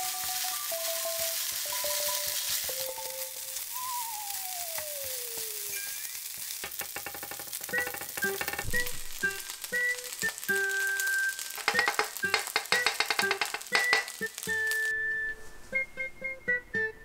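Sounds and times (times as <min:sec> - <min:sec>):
spatula stirring: 0:00.0 - 0:03.7, 0:05.4 - 0:14.8
fried rice sizzling in a pan: 0:00.0 - 0:15.0.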